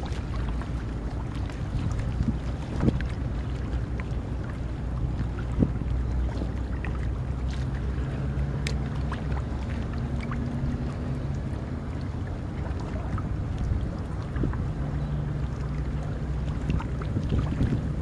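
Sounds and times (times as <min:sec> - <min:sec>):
faint low drone: 0:00.0 - 0:18.0
small waves lapping on rocks: 0:00.0 - 0:18.0
wind buffeting microphone: 0:00.0 - 0:18.0.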